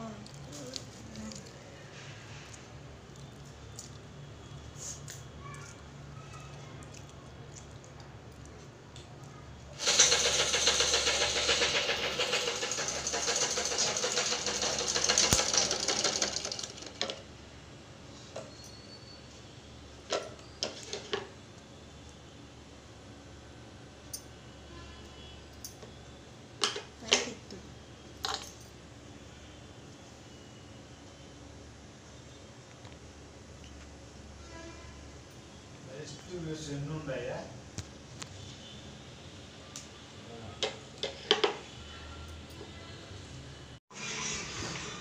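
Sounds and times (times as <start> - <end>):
sewing machine stitching clatter: 9.8 - 17.2.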